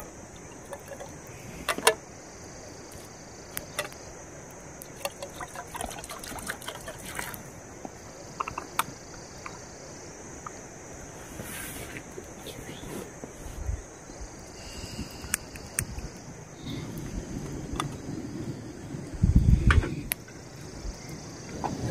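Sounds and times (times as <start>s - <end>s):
water pouring into a metal pot: 5.1s - 7.4s.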